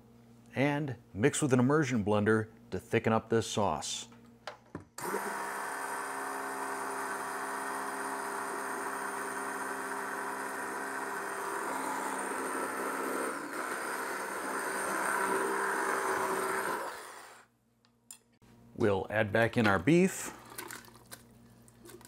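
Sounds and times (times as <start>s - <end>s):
immersion blender whirring: 5.0s - 17.5s.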